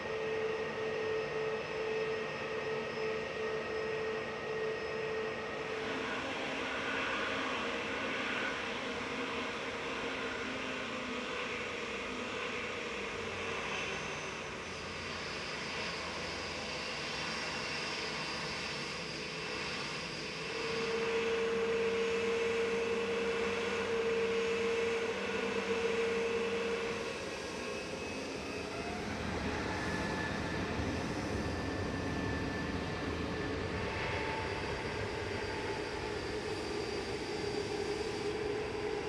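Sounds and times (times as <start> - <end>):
jet engines rumbling and whining: 0.0 - 39.0.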